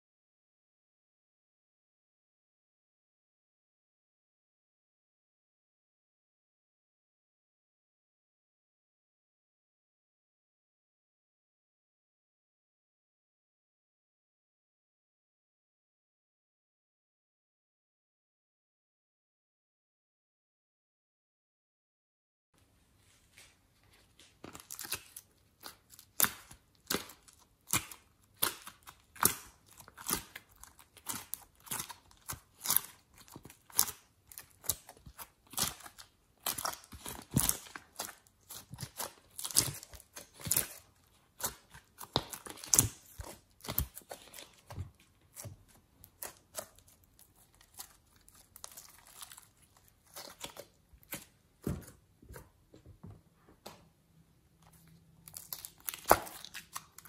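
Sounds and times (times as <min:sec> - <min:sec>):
slime crackling and popping: 0:24.5 - 0:51.3, 0:55.2 - 0:57.0.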